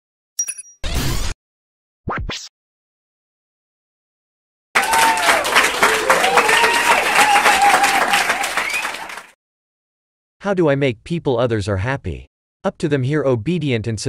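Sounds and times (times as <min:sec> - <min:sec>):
audience applauding: 0:04.8 - 0:09.4.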